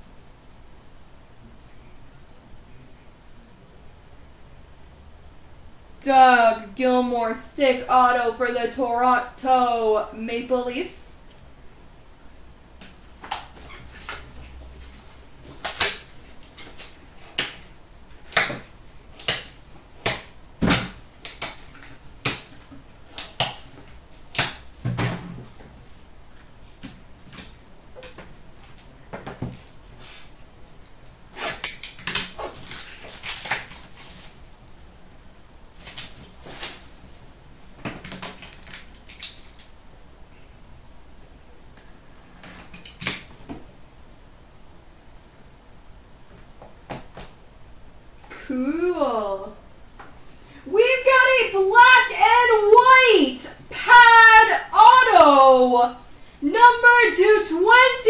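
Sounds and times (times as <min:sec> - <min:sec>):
scraping and rustling: 0:32.3 - 0:37.2.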